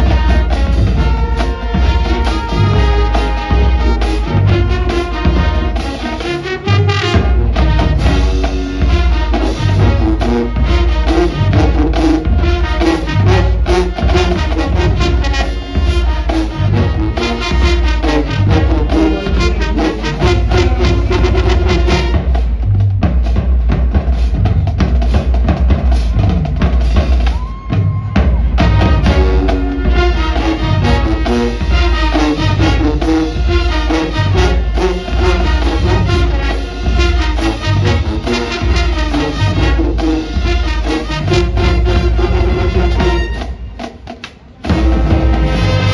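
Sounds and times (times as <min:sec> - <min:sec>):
brass playing: 0:00.0 - 0:22.8, 0:25.9 - 0:45.9
drumline beat: 0:00.0 - 0:45.9.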